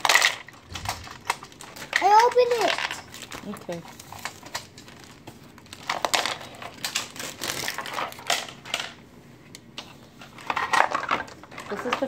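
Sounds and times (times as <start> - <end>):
plastic toy parts clicking: 0.0 - 3.0
paper rustling and crinkling: 0.0 - 8.7.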